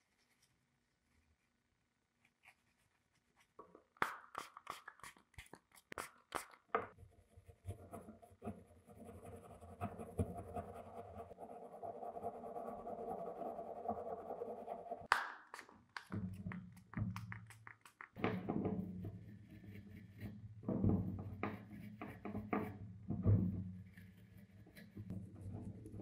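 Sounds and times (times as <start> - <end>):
paintbrush bristles scrubbing: 2.2 - 6.7.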